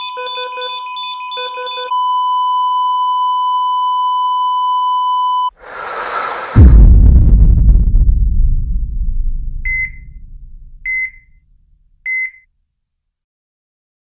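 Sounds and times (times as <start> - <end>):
deep cinematic boom: 5.6 - 12.0
short high electronic beeps: 9.7 - 10.1, 10.9 - 11.3.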